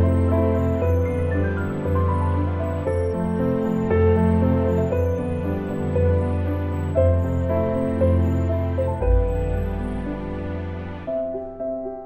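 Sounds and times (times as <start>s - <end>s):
soft slow background music: 0.0s - 12.0s.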